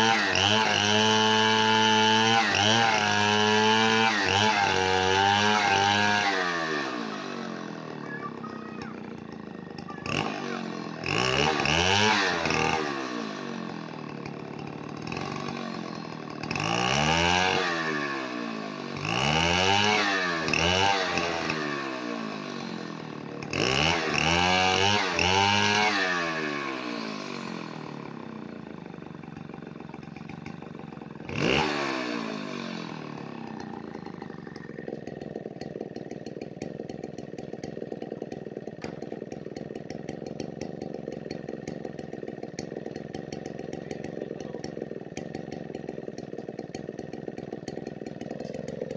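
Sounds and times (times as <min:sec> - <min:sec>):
chainsaw revving and idling: 0:00.0 - 0:48.9.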